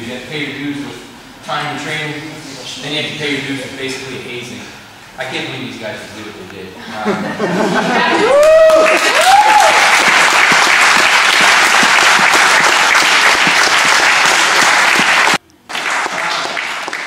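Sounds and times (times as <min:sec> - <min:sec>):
crowd applause: 0:08.0 - 0:17.0.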